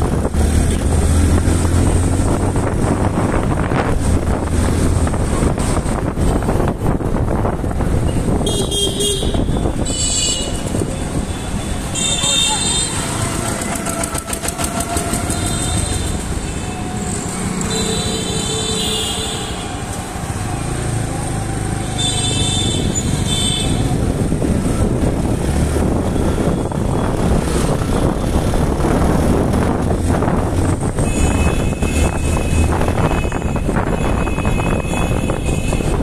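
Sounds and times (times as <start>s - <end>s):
wind noise: 0.0s - 12.0s, 22.7s - 36.0s
vehicle horns: 8.2s - 19.8s, 22.0s - 23.9s, 31.0s - 36.0s.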